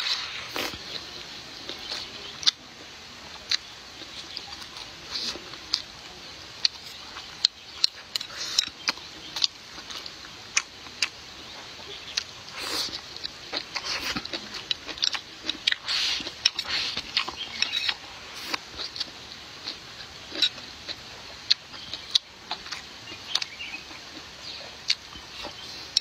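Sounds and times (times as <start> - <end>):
chewing with wet mouth clicks: 1.7 - 2.6, 12.1 - 26.0.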